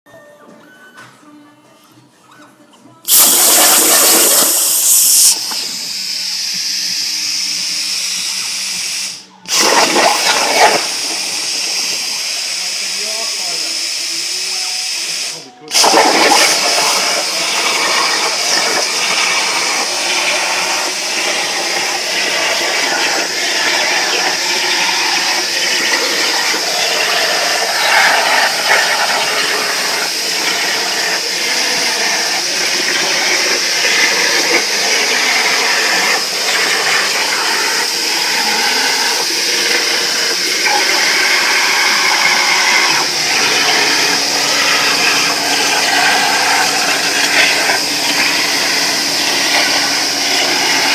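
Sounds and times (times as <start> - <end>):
plasma torch hissing: 3.1 - 50.9.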